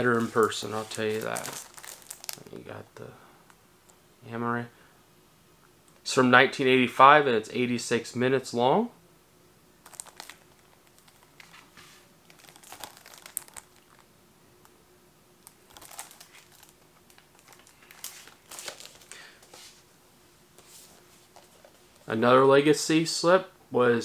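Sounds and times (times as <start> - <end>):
plastic shrink-wrap crinkling: 0.0 - 2.6, 9.8 - 14.1, 15.4 - 19.3
faint steady hum: 0.0 - 24.0.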